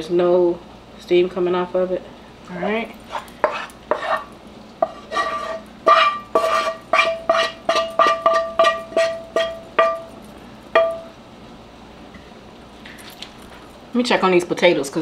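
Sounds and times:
frying pan clanking on bowl: 0:04.8 - 0:11.1.

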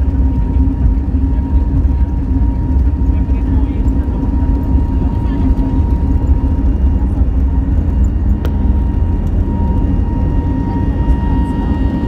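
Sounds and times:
jet engines low rumble: 0:00.0 - 0:12.0.

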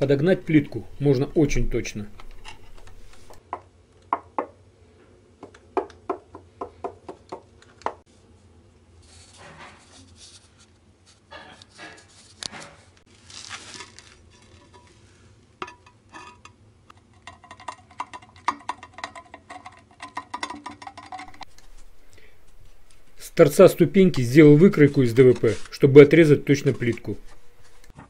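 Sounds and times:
clicks and squeaks: 0:00.8 - 0:03.4.

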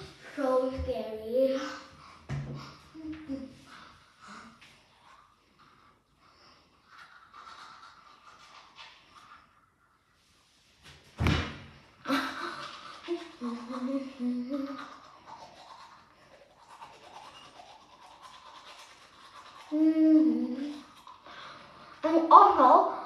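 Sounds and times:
child's muffled voice: 0:00.0 - 0:01.9, 0:13.4 - 0:15.0, 0:19.7 - 0:20.8, 0:22.0 - 0:23.0
toothbrush scrubbing teeth: 0:02.6 - 0:10.5, 0:12.1 - 0:23.0
loud thump: 0:11.2 - 0:11.7.

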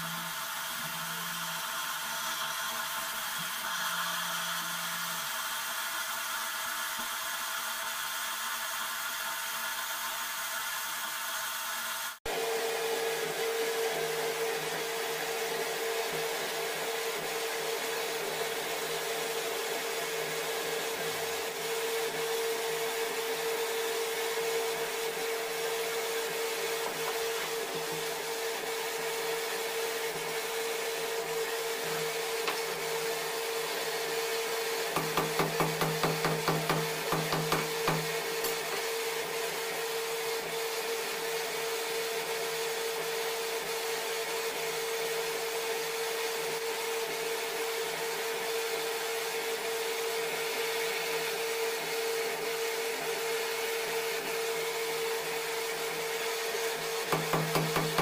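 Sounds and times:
electric air blower humming whine: 0:00.0 - 0:07.4, 0:12.3 - 0:58.0
rapid knocks: 0:35.0 - 0:38.2, 0:57.1 - 0:58.0.

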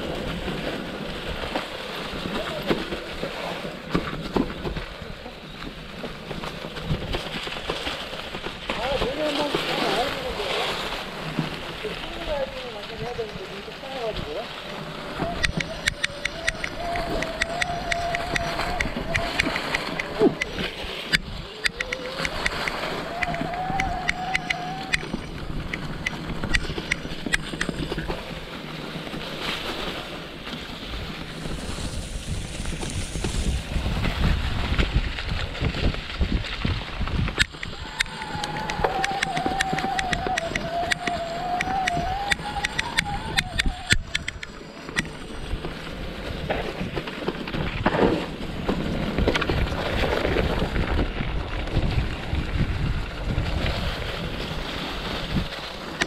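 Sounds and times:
bike tyres rolling over dry leaves: 0:00.0 - 0:56.0
wind on the microphone: 0:06.8 - 0:28.5, 0:30.7 - 0:56.0
sharp ticks and rattles: 0:15.2 - 0:28.2, 0:37.1 - 0:46.1.

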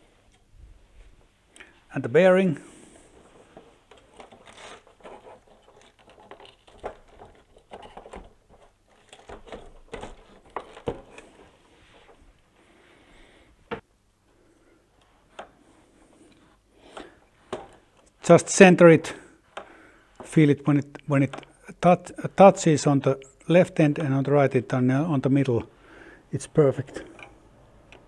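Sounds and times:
plastic parts scraping and rustling: 0:02.9 - 0:12.4, 0:15.0 - 0:18.3.

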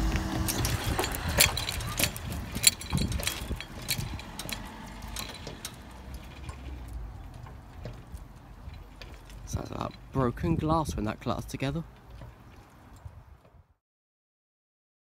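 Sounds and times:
sharp clinks and clatters: 0:00.4 - 0:10.4.

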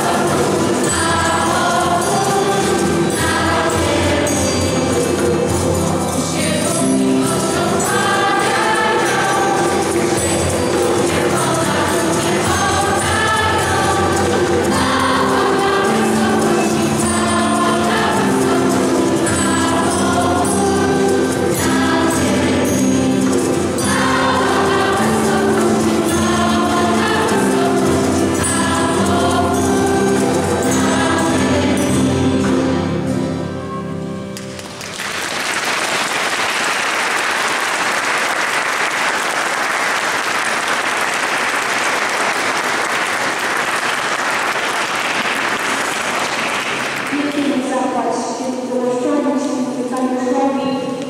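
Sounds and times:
choir singing a carol: 0:00.0 - 0:33.6
audience applause: 0:34.4 - 0:47.3.

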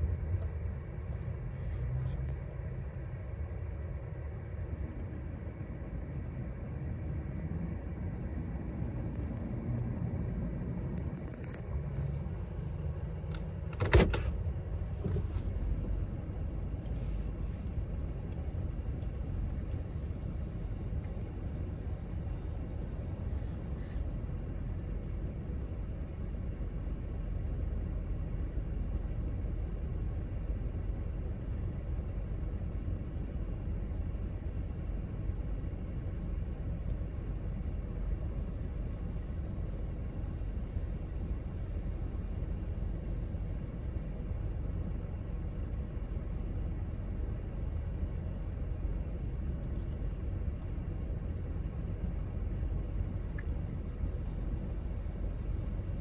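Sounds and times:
truck tyre hiss: 0:23.0 - 0:24.3.

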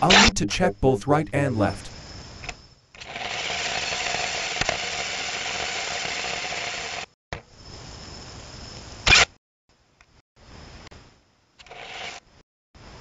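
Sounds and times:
small electric motors whirring: 0:03.0 - 0:07.1, 0:11.6 - 0:12.2.

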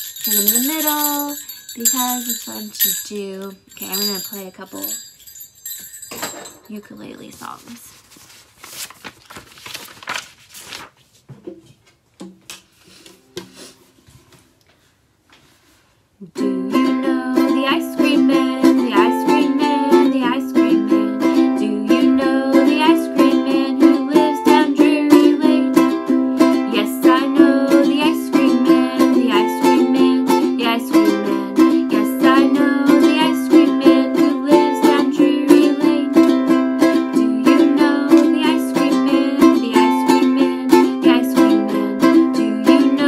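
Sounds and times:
ukulele strumming chords: 0:16.3 - 0:43.0.

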